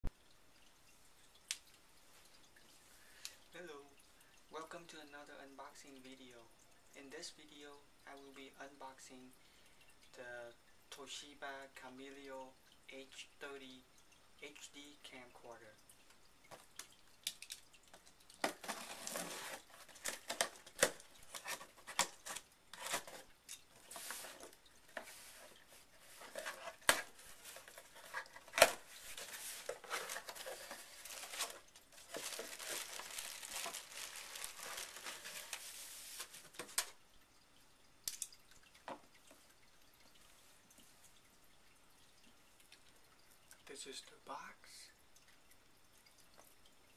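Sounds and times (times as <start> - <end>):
plastic packaging crinkling: 18.4 - 37.0
packing tape tearing: 26.2 - 36.9.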